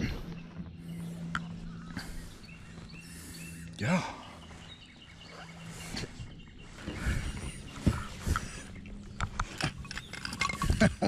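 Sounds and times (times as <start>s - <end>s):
fishing tackle clicking and knocking: 9.1s - 11.0s.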